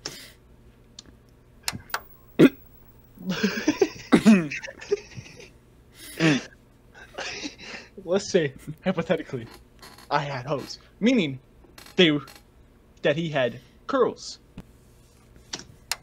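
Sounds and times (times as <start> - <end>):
sharp clicks: 1.7 - 3.2
person coughing or throat noises: 2.4 - 4.8.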